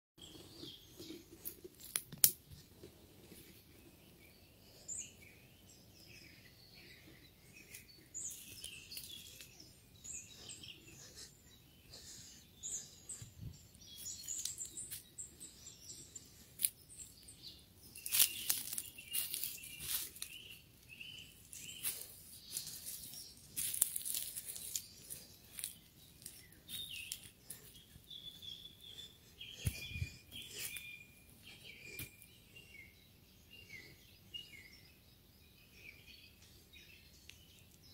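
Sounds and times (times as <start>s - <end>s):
small birds chirping: 0.2s - 37.9s
footsteps in dry leaves: 17.9s - 20.6s, 21.4s - 27.8s.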